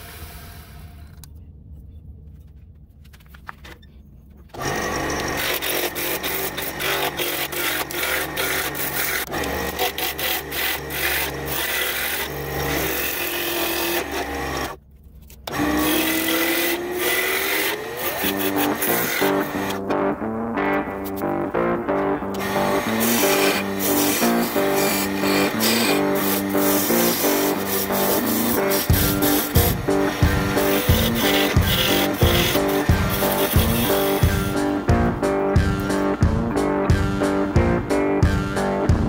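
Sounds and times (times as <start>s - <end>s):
wood lathe gouge scraping: 4.6s - 14.8s, 15.5s - 19.8s, 22.3s - 34.8s.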